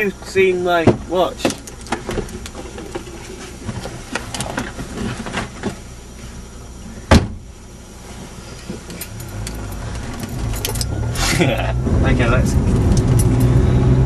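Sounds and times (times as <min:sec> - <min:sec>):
low car rumble: 0:00.0 - 0:14.0
people shifting in seats: 0:01.4 - 0:07.0, 0:08.0 - 0:11.7
loud sharp thump: 0:07.1 - 0:07.4.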